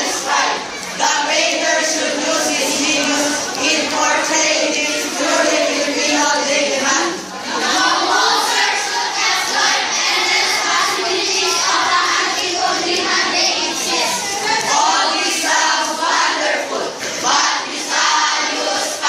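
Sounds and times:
choir singing and chanting: 0.0s - 19.0s.

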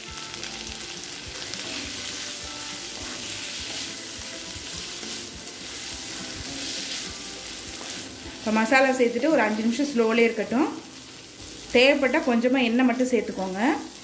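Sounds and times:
cauliflower sizzling in a pan: 0.0s - 14.0s
wooden spatula scraping a pan: 1.7s - 8.7s.

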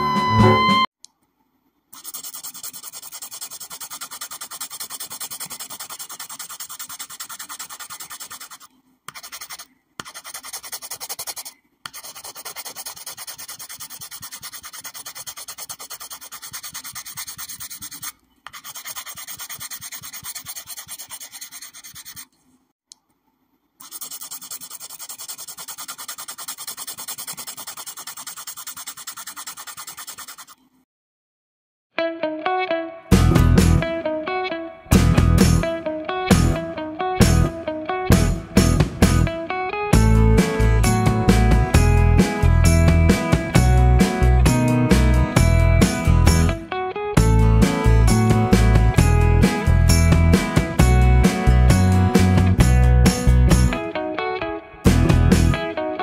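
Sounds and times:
marker scratching on paper: 1.9s - 22.4s, 23.8s - 30.6s.

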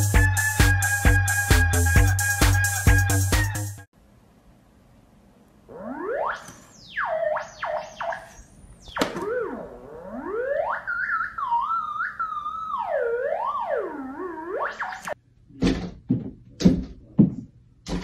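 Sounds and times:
theremin sliding in pitch: 5.7s - 15.2s.

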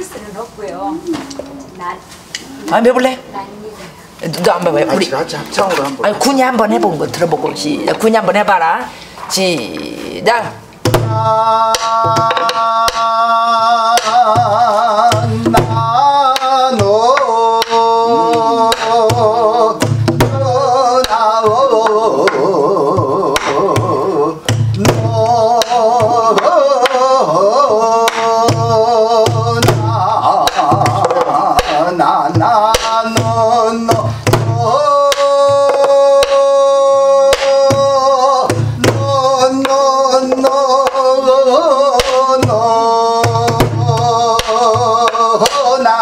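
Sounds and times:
wordless vocal melody with vibrato: 9.6s - 46.0s.

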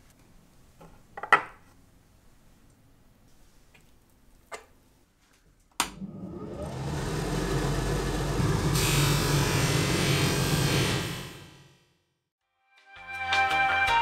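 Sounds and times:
polishing machine motor hum: 5.9s - 11.8s.

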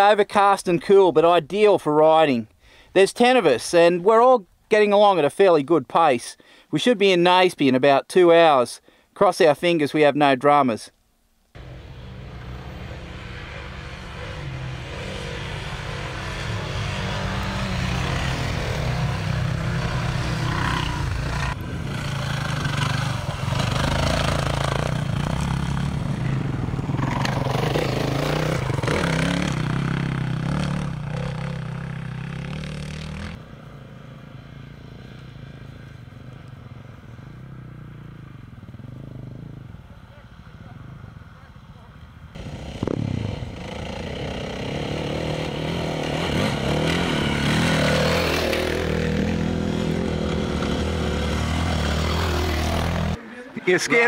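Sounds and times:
dirt bike engines revving: 11.6s - 54.0s.

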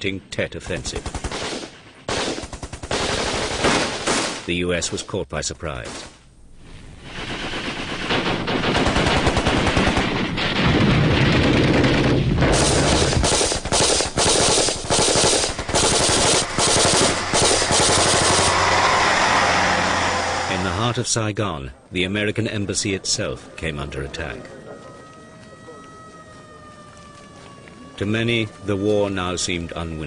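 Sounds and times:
automatic gunfire bursts: 1.0s - 4.4s, 7.6s - 10.3s, 12.5s - 18.6s.

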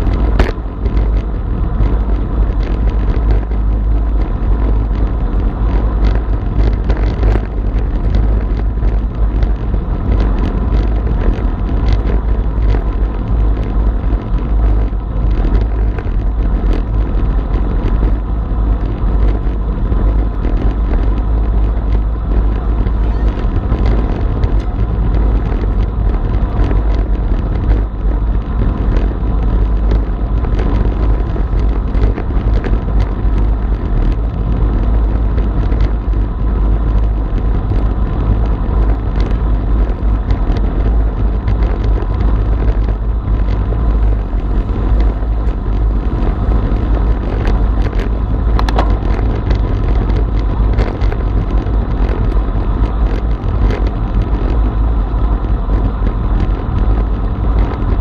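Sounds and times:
bicycle tyre rumble: 0.0s - 58.0s
wind on microphone: 0.0s - 58.0s
small clicks and knocks: 46.7s - 54.6s.

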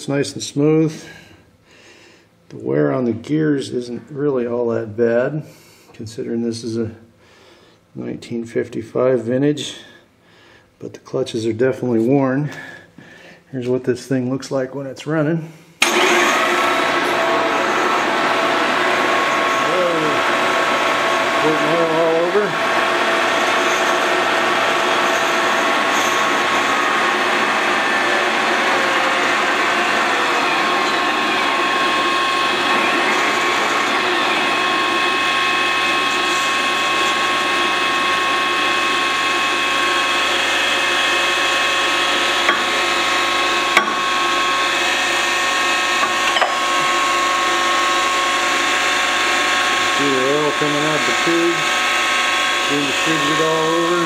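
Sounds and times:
gears whining: 21.4s - 54.0s.

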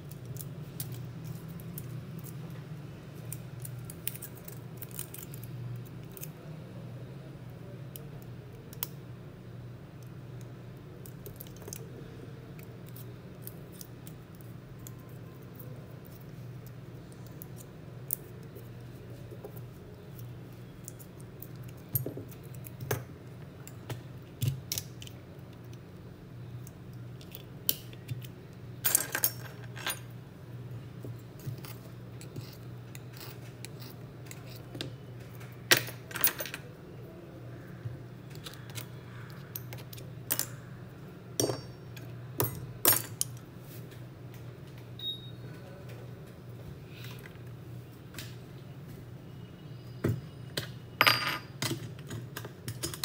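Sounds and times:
steady low hum: 0.0s - 53.0s
metal tools clicking and tapping: 41.4s - 43.4s, 50.6s - 53.0s.

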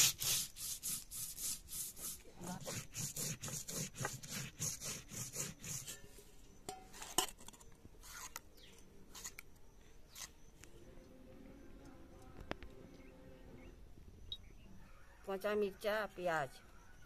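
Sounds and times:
grinding stone rubbing: 0.0s - 6.1s, 7.0s - 9.5s
stone scrapes and clinks: 6.7s - 9.5s.

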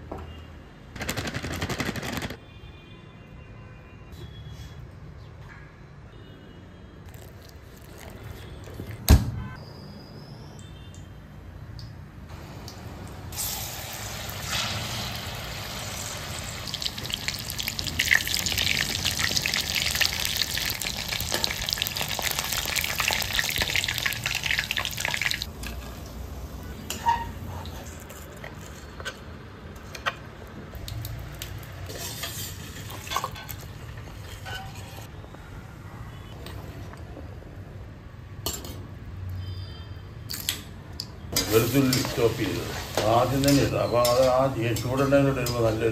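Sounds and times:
chicken sizzling in hot oil: 13.3s - 25.5s, 41.4s - 44.5s.

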